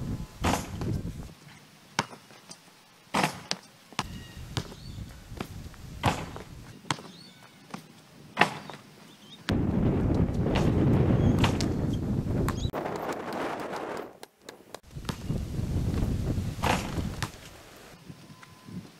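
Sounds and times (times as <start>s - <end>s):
wind rushing on microphone: 0.0s - 1.3s, 4.0s - 6.7s, 9.5s - 14.2s, 14.8s - 18.9s
faint bird chirps: 4.0s - 5.1s, 7.0s - 7.8s.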